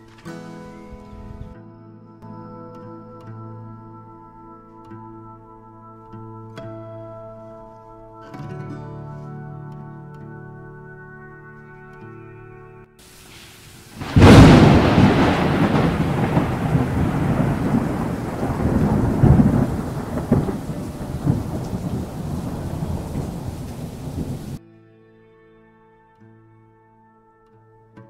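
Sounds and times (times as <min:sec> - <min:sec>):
rain hissing: 0:13.0 - 0:24.6
thunder crack and rumble: 0:13.2 - 0:24.6.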